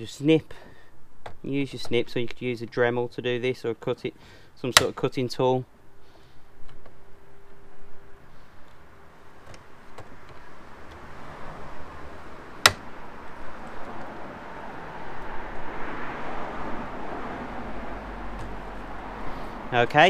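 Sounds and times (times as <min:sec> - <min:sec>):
plastic snapping: 0:04.7 - 0:05.0, 0:12.6 - 0:12.9
snips cutting plastic: 0:04.7 - 0:05.0, 0:12.6 - 0:12.9.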